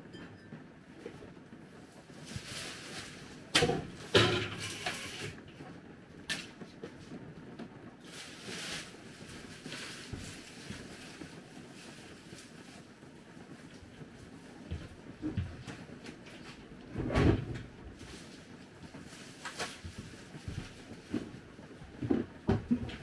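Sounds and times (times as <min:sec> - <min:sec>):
rustling: 0:01.0 - 0:05.5, 0:08.0 - 0:23.0.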